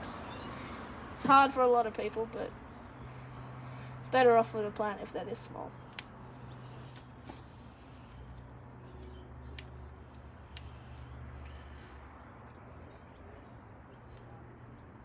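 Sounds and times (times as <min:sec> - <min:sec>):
scissors snipping stalks: 0:05.7 - 0:07.4, 0:08.2 - 0:11.6.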